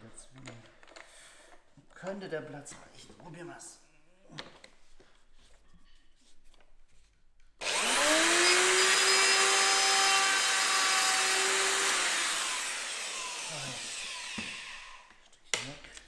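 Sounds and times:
wood router cutting wood: 7.6s - 15.2s.

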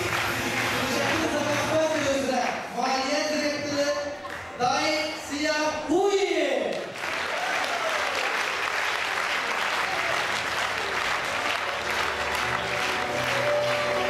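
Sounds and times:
music: 0.0s - 2.3s, 10.1s - 14.0s
audience applauding: 0.0s - 2.7s, 6.7s - 14.0s.

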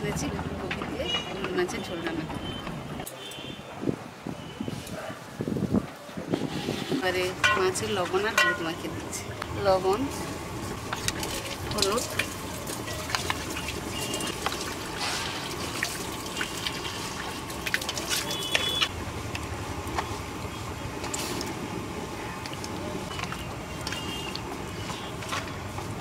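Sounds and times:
clinks against steel bowl: 7.4s - 8.8s
wet squelching of fish: 10.1s - 26.0s.

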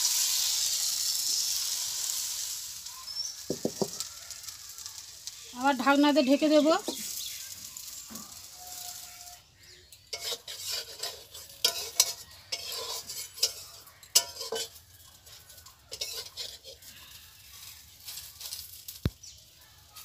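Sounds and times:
metal spatula scraping a wok: 0.0s - 2.6s, 6.8s - 19.0s
faint frying sizzle: 0.0s - 20.0s.

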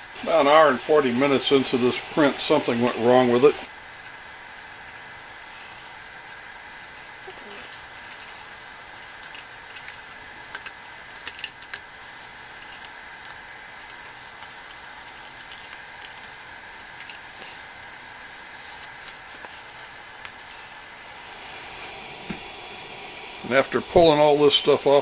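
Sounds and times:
steady hiss: 0.0s - 25.0s.

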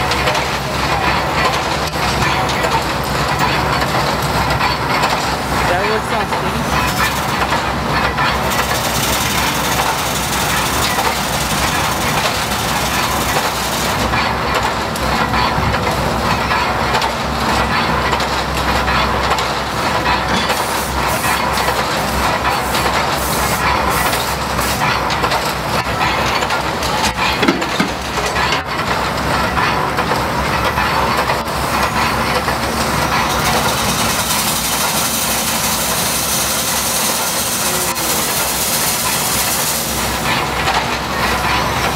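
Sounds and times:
steam engine clattering: 0.0s - 41.9s
steam hissing: 8.4s - 14.1s, 20.5s - 24.9s, 32.9s - 40.6s.

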